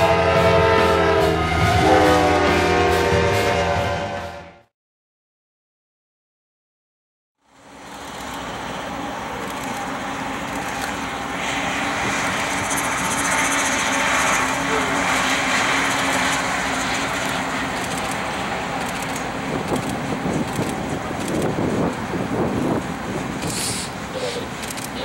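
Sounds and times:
diesel locomotive engines droning: 0:00.0 - 0:04.6, 0:07.4 - 0:25.0
train wheels on rail: 0:07.5 - 0:25.0.

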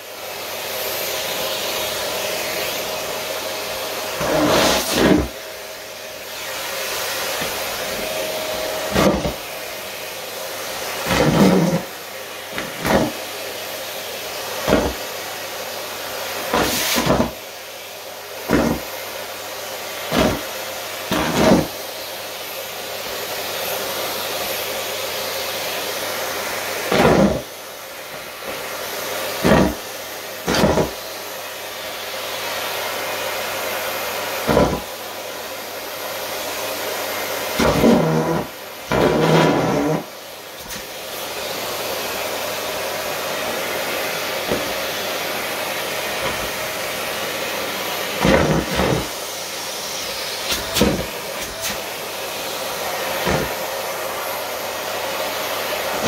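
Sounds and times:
fabric sucked up vacuum wand: 0:00.0 - 0:56.0
vacuum cleaner running: 0:00.0 - 0:56.0.

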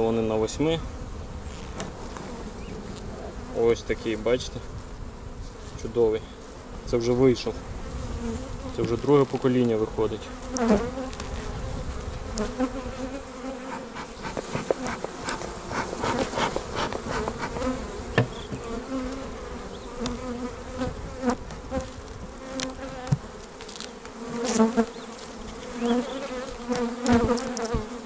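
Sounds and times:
honeybees buzzing: 0:00.0 - 0:28.0
wooden hive frames knocking: 0:13.6 - 0:19.2, 0:22.5 - 0:23.4.

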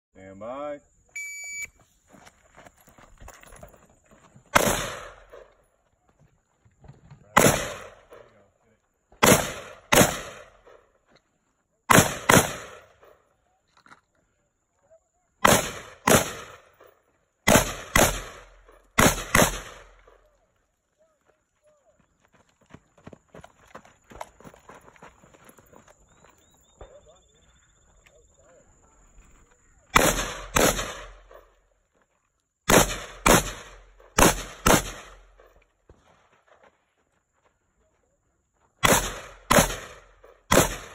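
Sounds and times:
gunshots: 0:04.5 - 0:05.5, 0:07.3 - 0:08.3, 0:09.2 - 0:10.8, 0:11.9 - 0:13.0, 0:15.4 - 0:20.2, 0:29.9 - 0:31.5, 0:32.7 - 0:35.5, 0:38.8 - 0:40.9
rifle shots with echo: 0:04.5 - 0:05.5, 0:07.4 - 0:08.3, 0:09.2 - 0:10.8, 0:11.9 - 0:13.0, 0:15.4 - 0:20.2, 0:29.9 - 0:31.5, 0:32.7 - 0:35.5, 0:38.8 - 0:40.9.

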